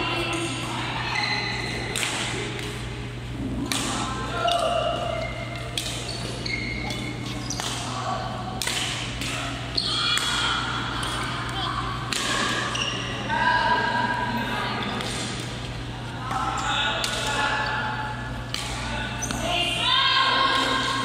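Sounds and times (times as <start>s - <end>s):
rackets striking shuttlecock: 1.8s - 2.9s, 3.6s - 7.9s, 8.5s - 12.7s, 18.4s - 19.4s.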